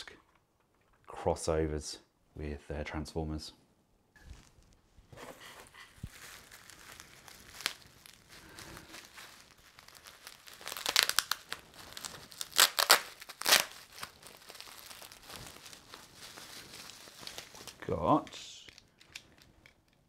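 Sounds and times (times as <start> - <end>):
plastic wrapping crinkling: 4.2 - 20.0.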